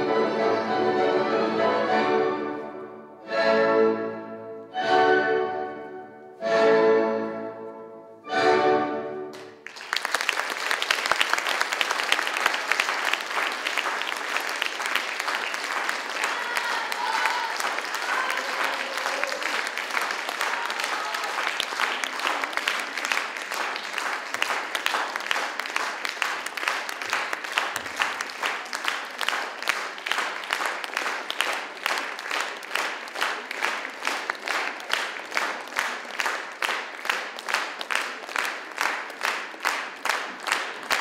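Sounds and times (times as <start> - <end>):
audience applauding: 9.3 - 41.0.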